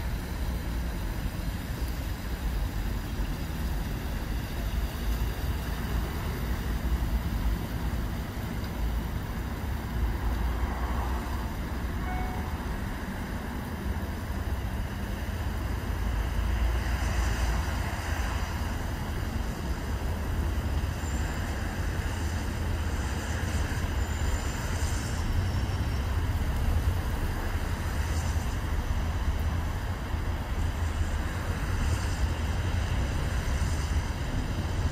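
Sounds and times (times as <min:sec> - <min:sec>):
boat engine rumbling: 0:00.0 - 0:16.8.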